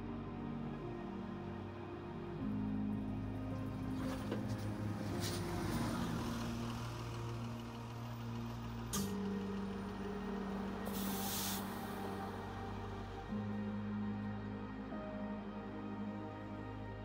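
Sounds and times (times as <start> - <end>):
soft background music: 0.0 - 17.0
bus engine running: 3.0 - 13.3
air brakes hissing: 10.9 - 12.0.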